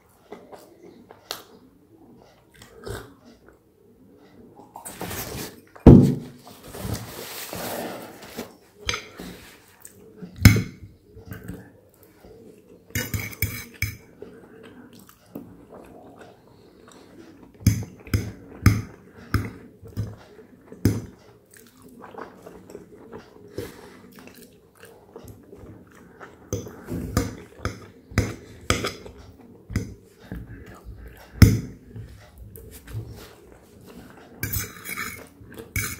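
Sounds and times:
paper towel rustling: 4.9 - 9.7
fork scraping ceramic plate: 13.0 - 14.1, 32.7 - 35.9
chewing soft food: 13.6 - 34.4.

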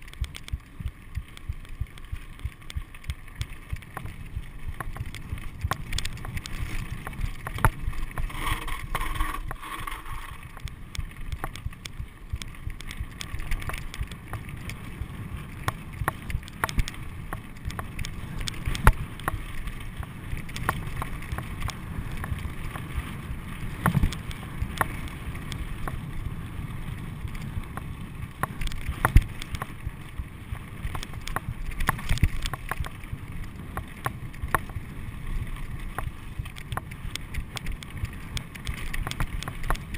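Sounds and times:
bike clattering over rocks: 0.0 - 26.2
bike tyres rumbling on gravel: 0.0 - 39.9
wind noise on microphone: 0.0 - 39.9.

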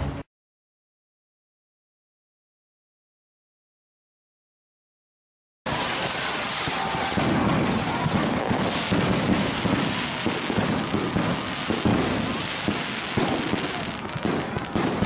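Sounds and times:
fireworks bangs: 5.7 - 15.0
fireworks crackling: 5.7 - 15.0.

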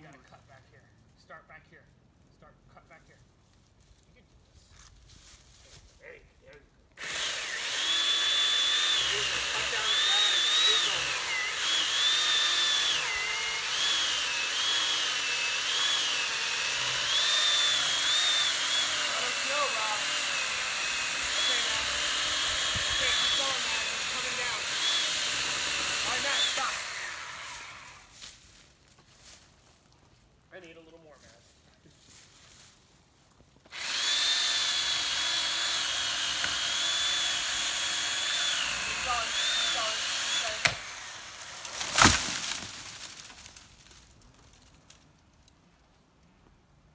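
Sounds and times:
electric saw cutting wood: 7.0 - 28.1, 33.7 - 43.3.

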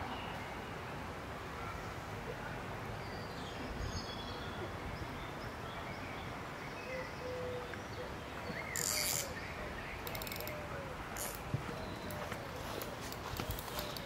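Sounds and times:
steady background hiss: 0.0 - 14.0.

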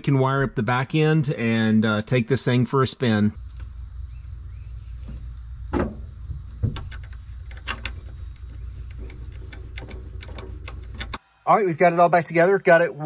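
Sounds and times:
steady low hum: 3.2 - 11.2
clicks and knocks of handling: 8.8 - 11.2.

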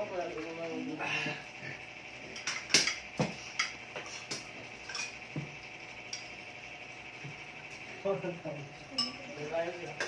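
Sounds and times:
faint high hum: 0.0 - 10.0
utensils clinking against cookware: 4.8 - 5.2, 8.9 - 10.0.

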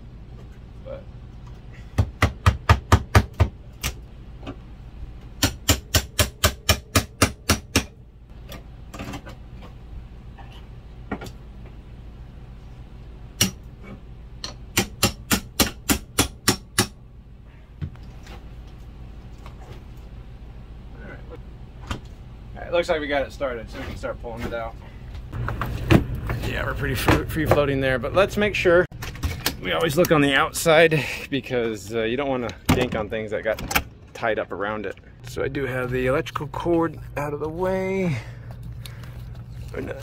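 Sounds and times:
hammer striking pry tool: 5.4 - 7.9, 14.4 - 17.0.

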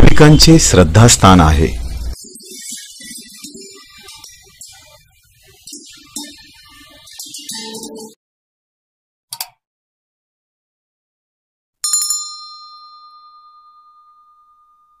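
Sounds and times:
bell-like ding: 11.8 - 15.0.

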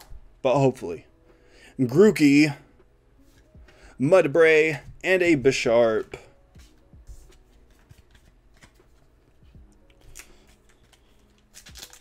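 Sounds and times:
trading cards rustling: 5.3 - 12.0
foil pack crinkling: 10.1 - 12.0.

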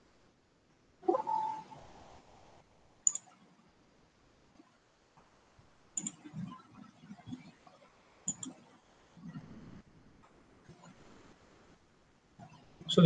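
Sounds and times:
computer mouse clicks: 3.0 - 3.4, 6.0 - 6.6, 8.3 - 8.8.

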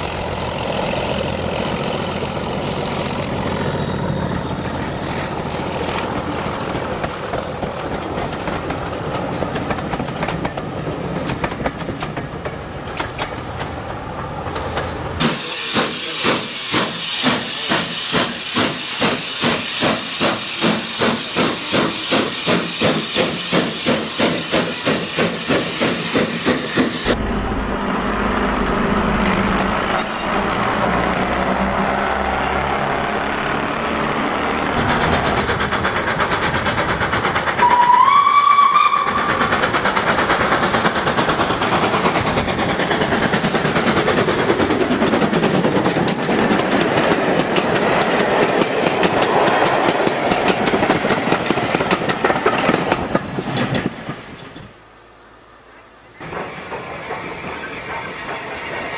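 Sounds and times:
model train running noise: 0.0 - 12.0, 15.2 - 27.2, 33.6 - 53.2, 56.2 - 58.9
model steam locomotive chuffing: 0.0 - 13.3, 15.2 - 27.3, 34.8 - 53.9, 56.1 - 58.9
rising train whistle: 37.6 - 39.4.

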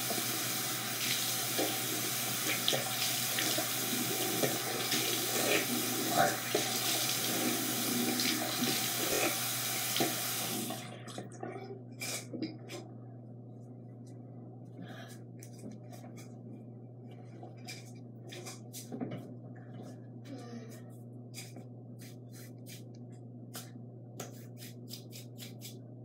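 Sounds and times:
sink tap running: 0.0 - 11.3.

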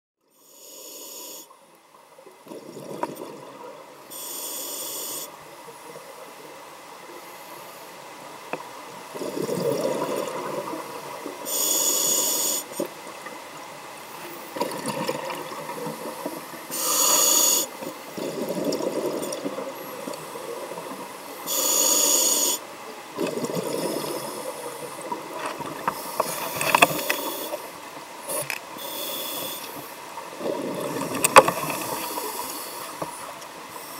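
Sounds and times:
regulator hissing inhale: 0.3 - 1.6, 4.1 - 5.4, 11.4 - 12.9, 16.7 - 17.8, 21.4 - 22.7, 25.9 - 27.7, 28.3 - 30.0, 31.8 - 33.9
gurgle of exhaled bubbles: 9.1 - 10.9, 14.6 - 16.2, 18.2 - 20.7, 23.2 - 25.8, 30.3 - 32.2.

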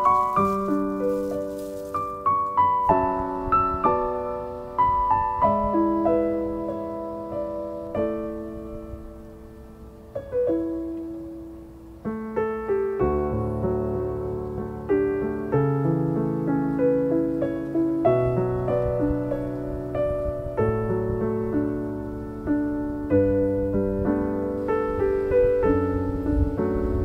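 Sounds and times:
solo piano music: 0.0 - 27.0.

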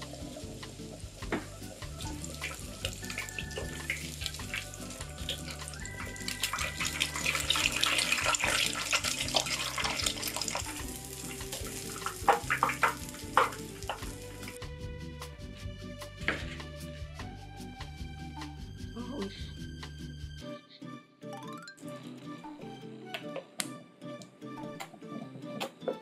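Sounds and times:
meat deep-frying in hot oil: 0.0 - 14.6
soft background music: 0.0 - 26.0.

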